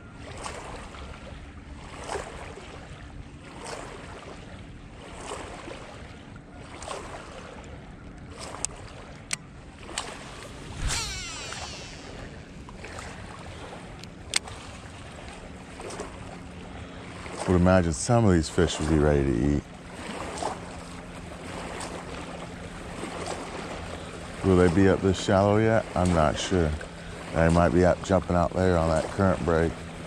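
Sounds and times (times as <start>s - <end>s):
water lapping: 0.0s - 30.0s
swish and falling whirr: 10.4s - 12.5s
wind on microphone: 10.4s - 13.8s
fishing reel clicks: 10.8s - 12.3s.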